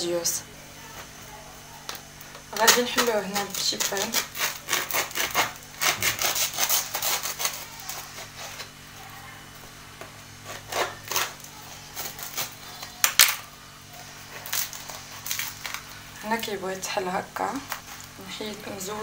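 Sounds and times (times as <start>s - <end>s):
knife sawing through bread crust: 3.0s - 8.7s, 10.4s - 12.9s, 14.0s - 16.0s.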